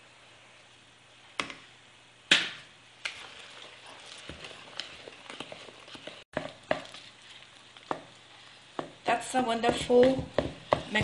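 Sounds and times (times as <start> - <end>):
whisk stirring batter: 3.0 - 11.0.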